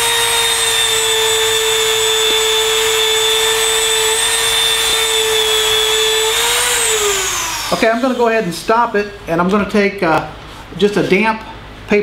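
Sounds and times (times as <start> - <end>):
rotary tool high whine: 0.0 - 8.6.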